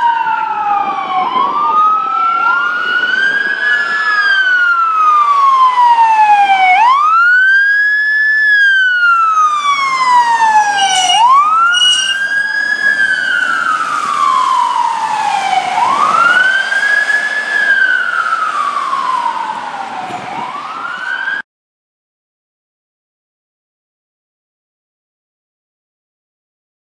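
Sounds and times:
fire truck siren wailing: 0:00.0 - 0:21.4
high siren blasts: 0:00.0 - 0:21.4.

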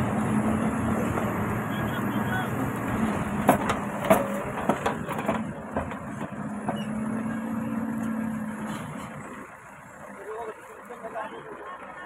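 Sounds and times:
diesel engine running: 0:00.0 - 0:12.0
sharp knocks and clicks: 0:03.4 - 0:06.9.

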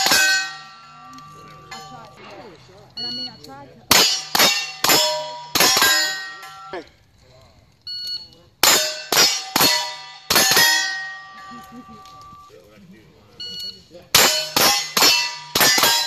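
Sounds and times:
steel target clanging: 0:00.0 - 0:02.5, 0:03.9 - 0:06.9, 0:08.6 - 0:12.5, 0:14.1 - 0:16.0
gunshots: 0:03.9 - 0:06.6, 0:08.6 - 0:11.2, 0:14.1 - 0:16.0.

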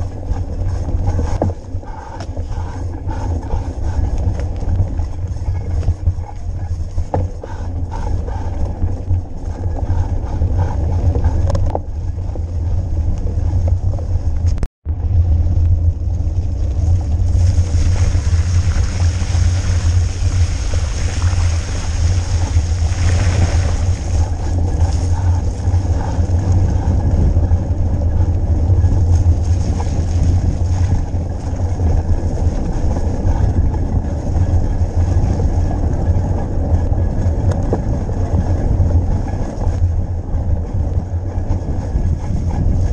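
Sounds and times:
bike tyre and ground noise: 0:00.0 - 0:42.9
wind buffeting microphone: 0:00.0 - 0:42.9.

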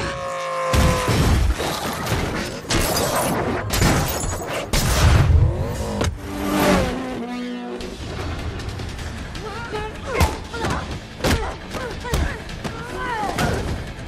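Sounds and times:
background film score: 0:00.0 - 0:14.0.

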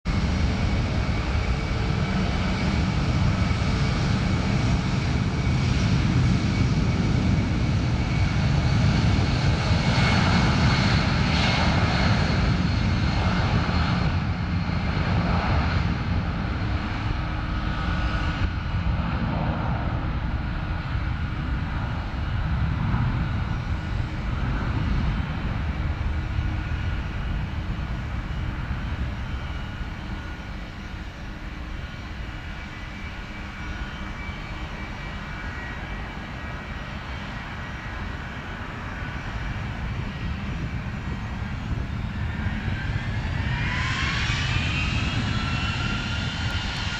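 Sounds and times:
jet engines roaring at takeoff: 0:00.0 - 0:46.9.

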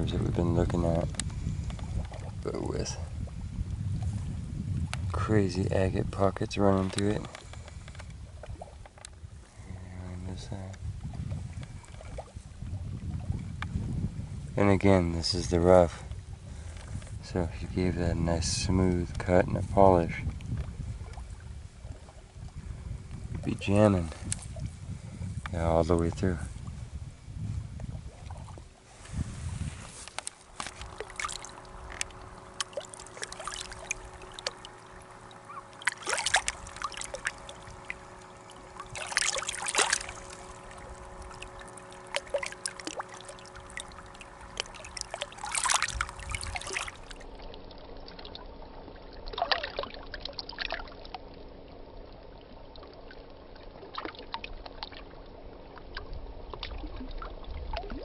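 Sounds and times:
water trickling and splashing: 0:06.2 - 0:09.1, 0:10.1 - 0:13.9, 0:18.4 - 0:58.0
loud water splashes: 0:30.5 - 0:47.4, 0:49.3 - 0:51.1.

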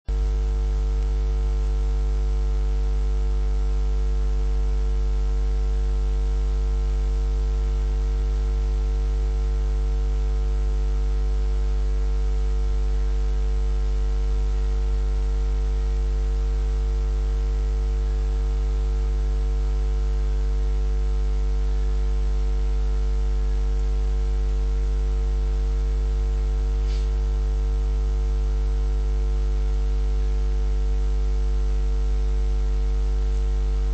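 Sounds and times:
electrical mains hum: 0:05.8 - 0:16.6, 0:21.3 - 0:33.9
light hiss: 0:26.8 - 0:27.4.

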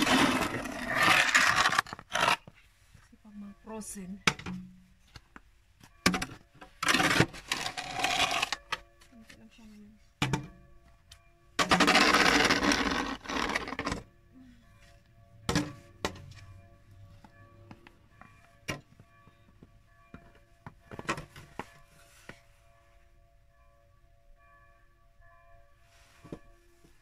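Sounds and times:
snow shovel scraping pavement: 0:00.0 - 0:02.6, 0:06.8 - 0:08.6, 0:11.6 - 0:14.0.

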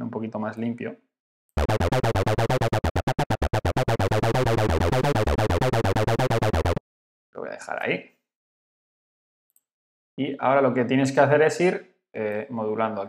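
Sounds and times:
distorted acid techno synth sequence: 0:01.6 - 0:06.8.

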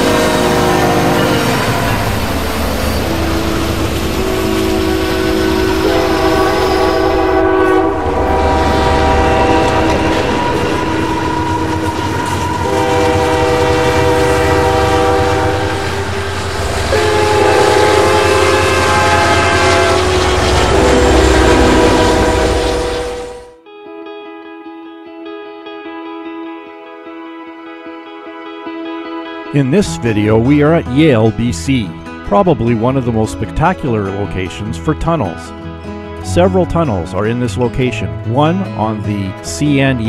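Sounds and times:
locomotive air horn blasts: 0:00.0 - 0:23.6
low rumble of train: 0:00.0 - 0:23.6.

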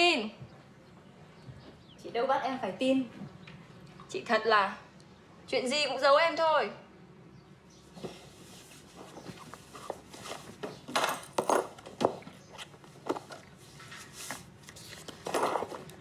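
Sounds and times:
rustling of things handled: 0:07.9 - 0:16.0.

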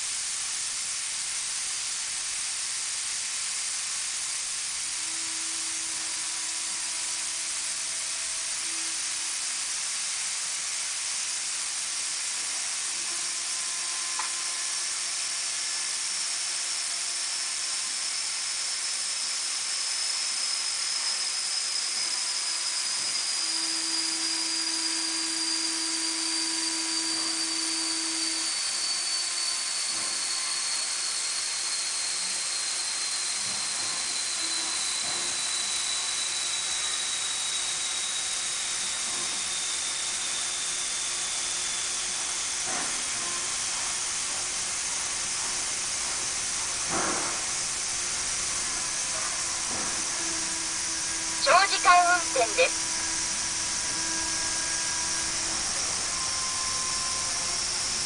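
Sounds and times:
steady hiss: 0:00.0 - 0:16.4
faint high whistle falling in pitch: 0:21.1 - 0:43.9, 0:52.7 - 0:58.0.

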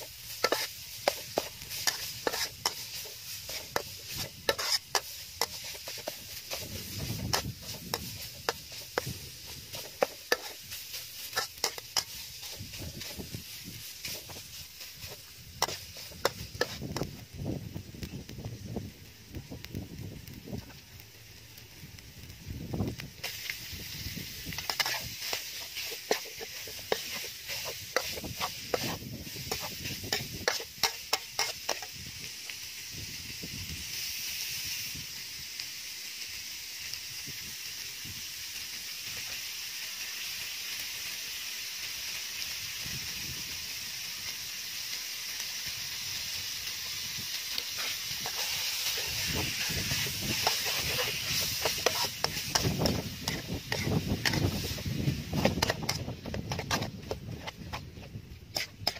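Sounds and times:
metal spatula scraping wok: 0:00.0 - 0:17.1, 0:23.2 - 0:32.0, 0:46.8 - 0:58.9
meat sizzling in a wok: 0:00.0 - 0:58.9.

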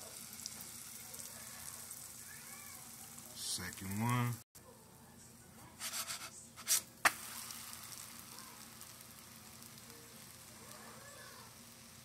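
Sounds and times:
pancake sizzling in a frying pan: 0:00.0 - 0:04.4, 0:05.8 - 0:12.0
spatula scrape: 0:05.8 - 0:06.9.

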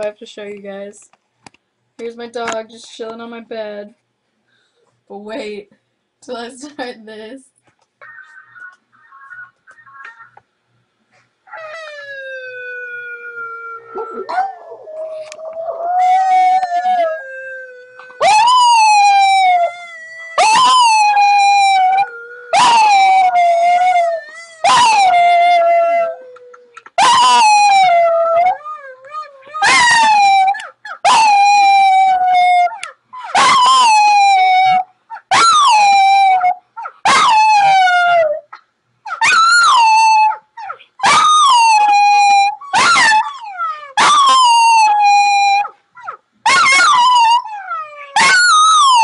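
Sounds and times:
video playing: 0:08.0 - 0:10.5
dog howling: 0:11.5 - 0:38.4, 0:39.2 - 0:40.4.

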